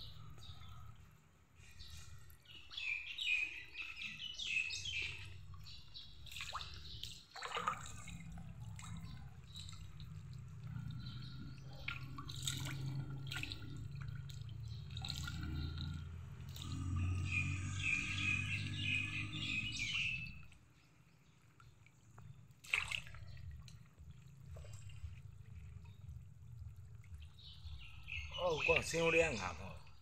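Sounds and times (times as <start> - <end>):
birds chirping: 0.0 - 22.5, 23.2 - 30.0
fish splashing in water: 5.0 - 20.8, 21.4 - 28.1
low steady rumble: 23.2 - 28.3.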